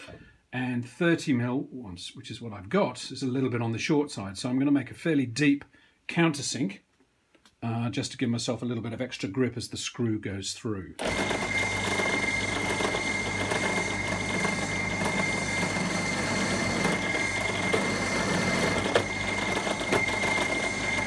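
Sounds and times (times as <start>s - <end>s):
drill bit cutting wood: 11.0s - 21.0s
drill press whining: 11.0s - 21.0s.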